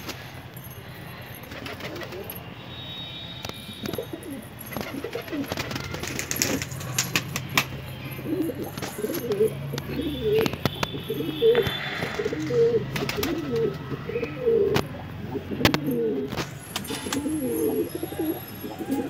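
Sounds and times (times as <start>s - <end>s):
pigeons cooing: 3.8s - 19.0s.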